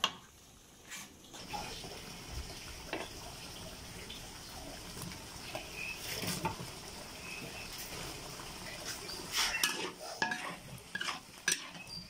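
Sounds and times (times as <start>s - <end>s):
food sizzling in a wok: 0.0s - 12.0s
spatula scraping pan: 8.8s - 12.0s.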